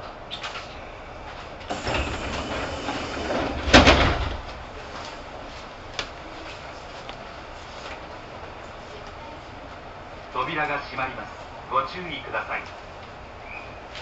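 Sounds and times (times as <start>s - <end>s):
pneumatic doors opening: 1.7s - 4.5s
doors thudding open: 1.7s - 4.6s.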